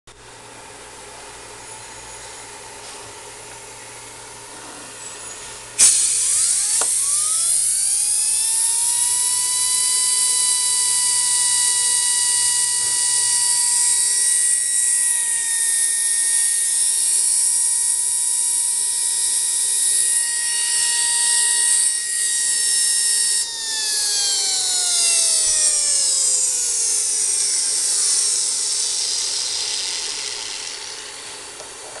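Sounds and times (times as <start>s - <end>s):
air grinder whine: 4.4s - 32.0s
exhaust air hiss: 5.4s - 7.2s.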